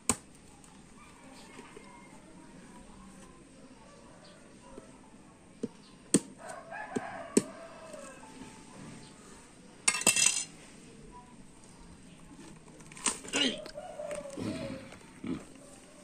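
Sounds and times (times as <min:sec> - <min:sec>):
rooster crowing: 0:06.4 - 0:08.4, 0:13.6 - 0:15.0.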